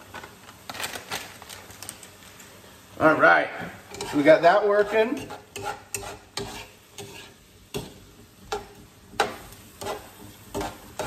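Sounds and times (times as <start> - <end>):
low sizzle: 0.0 - 11.0
utensil scraping and knocking pan: 3.9 - 11.0.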